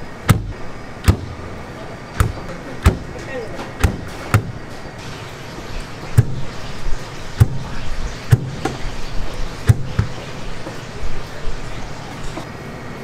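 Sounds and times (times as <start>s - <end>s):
steady background din: 0.0s - 12.5s
sharp knocks with low thud: 0.3s - 1.5s, 2.2s - 3.2s, 3.8s - 4.7s, 6.2s - 6.5s, 7.4s - 8.9s, 9.7s - 10.2s.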